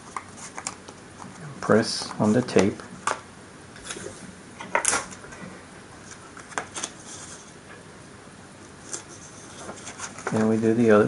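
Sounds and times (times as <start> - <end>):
paper rustling and tapping: 8.9 - 10.7.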